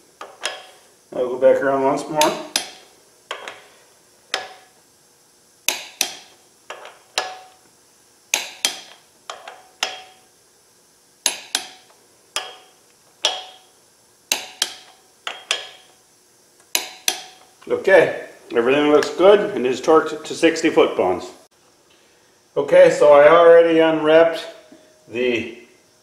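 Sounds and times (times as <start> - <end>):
torque wrench clicking: 2.2 - 3.7, 5.6 - 7.6, 8.3 - 10.3, 11.2 - 16.0, 16.6 - 17.7.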